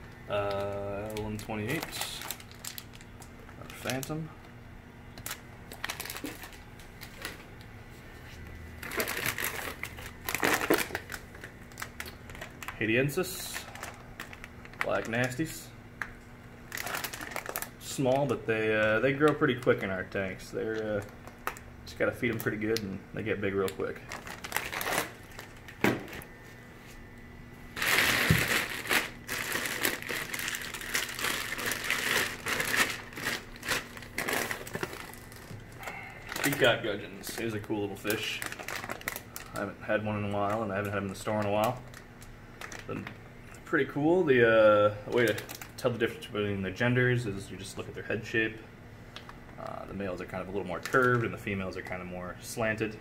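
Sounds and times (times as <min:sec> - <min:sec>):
plastic bags crinkling: 0:00.1 - 0:04.2, 0:05.2 - 0:07.6, 0:08.7 - 0:15.4, 0:16.7 - 0:20.1, 0:23.6 - 0:26.5, 0:27.7 - 0:43.1, 0:45.1 - 0:45.9, 0:50.7 - 0:51.3.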